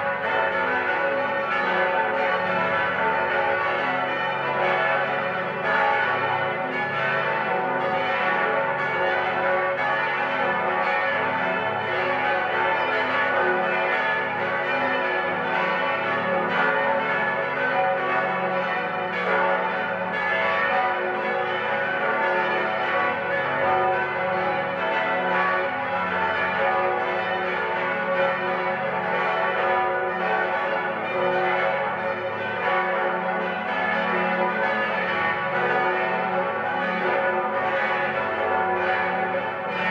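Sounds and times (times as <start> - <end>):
church bells ringing in peal: 0.0 - 39.9.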